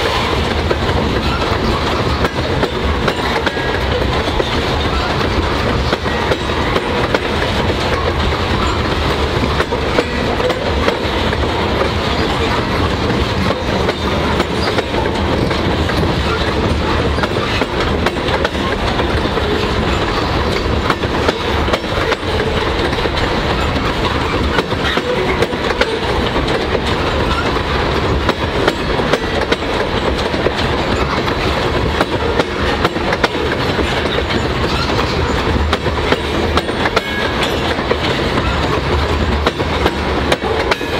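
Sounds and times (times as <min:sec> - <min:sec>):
train wheels rumbling on rail: 0:00.0 - 0:40.9
wheels clicking over rail joints: 0:00.0 - 0:40.9.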